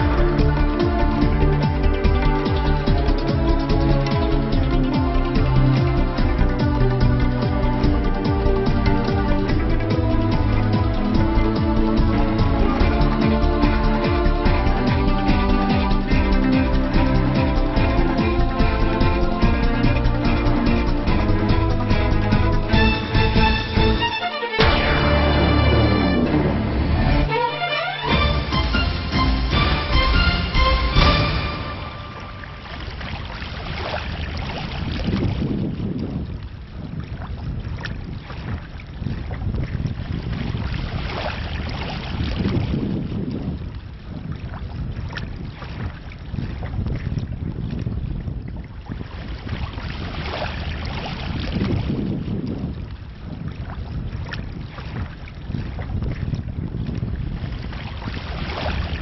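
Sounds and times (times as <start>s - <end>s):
music: 0.0s - 33.0s
wind buffeting microphone: 32.6s - 59.0s.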